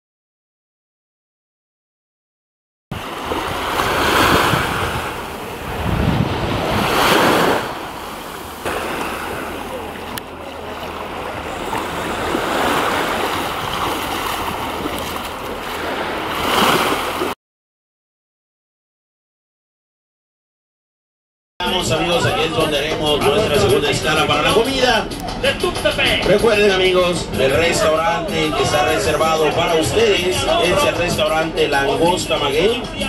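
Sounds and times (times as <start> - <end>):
wind rumbling on microphone: 2.9 - 17.4
small waves washing onto shore: 3.0 - 17.4.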